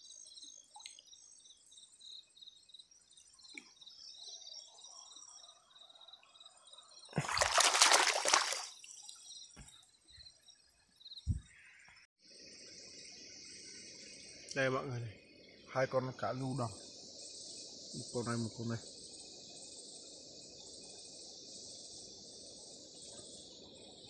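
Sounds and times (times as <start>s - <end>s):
insects chirping: 0.0s - 24.0s
water splashing and sloshing: 7.1s - 9.8s.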